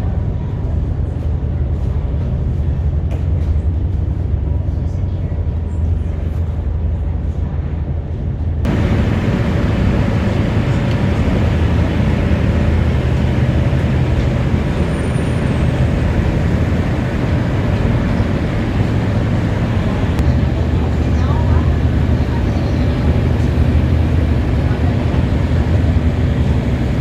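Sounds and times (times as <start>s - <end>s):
road noise: 8.5s - 27.0s
vehicle engine drone: 8.6s - 27.0s.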